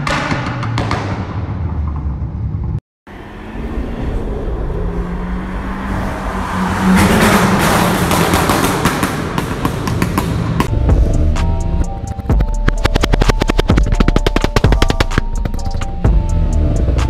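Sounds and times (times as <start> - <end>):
car engine passing by: 3.1 - 9.5
exhaust pops and crackles: 12.5 - 15.9.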